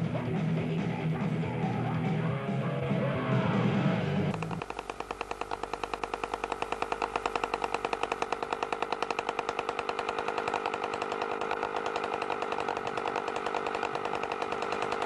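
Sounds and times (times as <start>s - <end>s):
two-stroke moped engine: 4.3s - 15.0s.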